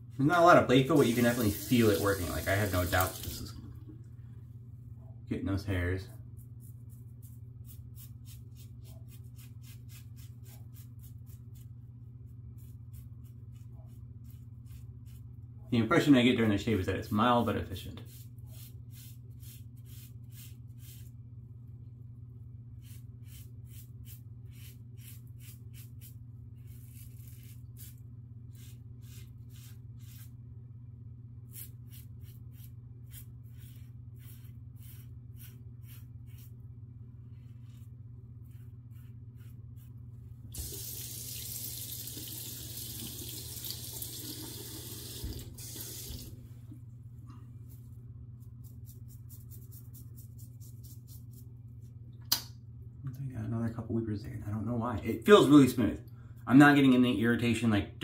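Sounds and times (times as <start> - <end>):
razor scraping stubble: 22.8 - 30.3.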